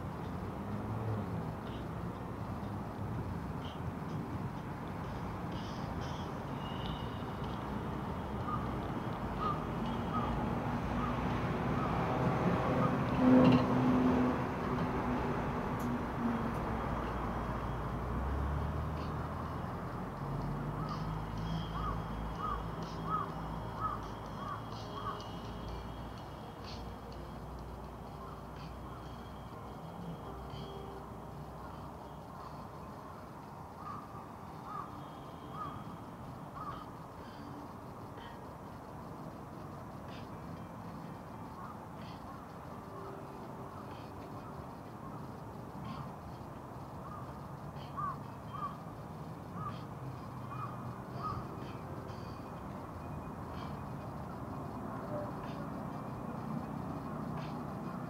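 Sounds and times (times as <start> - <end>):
low city hum: 0.0 - 58.0
road traffic rushing: 0.0 - 58.0
crow cawing: 8.4 - 8.7, 9.4 - 10.4, 21.8 - 25.3, 33.8 - 35.9, 36.6 - 37.4, 47.0 - 47.3, 47.9 - 48.8, 49.6 - 49.8, 50.5 - 51.4.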